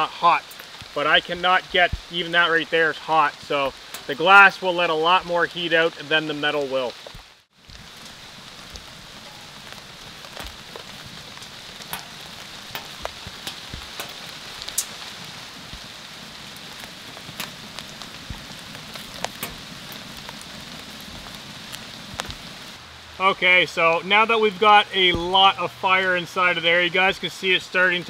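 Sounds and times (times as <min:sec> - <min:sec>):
falling rain hiss: 0:00.0 - 0:28.0
wood fire crackling and popping: 0:00.0 - 0:28.0.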